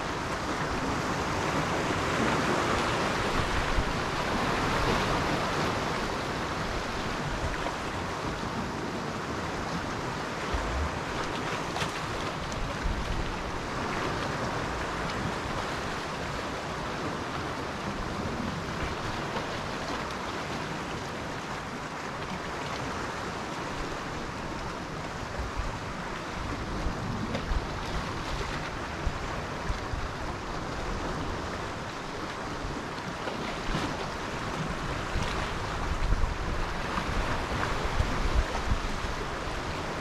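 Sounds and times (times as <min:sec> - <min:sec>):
sea surf washing on shore: 0:00.0 - 0:40.0
wind rumbling on microphone: 0:00.0 - 0:40.0.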